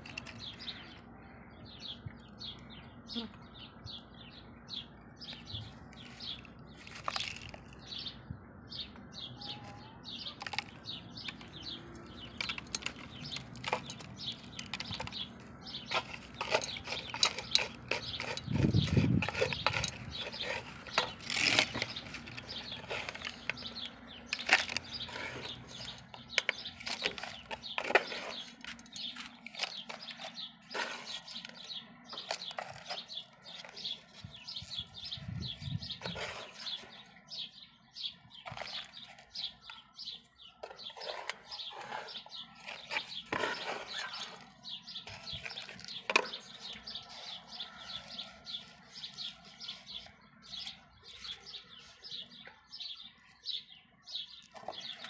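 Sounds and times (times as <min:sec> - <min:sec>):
birds chirping: 0:00.0 - 0:55.0
potting soil crackling: 0:05.3 - 0:07.9, 0:09.7 - 0:35.0, 0:35.9 - 0:37.2, 0:38.4 - 0:52.3.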